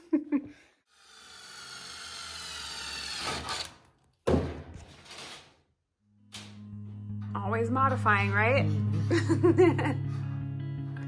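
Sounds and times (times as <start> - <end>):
cordless drill whining: 0.9 - 3.8.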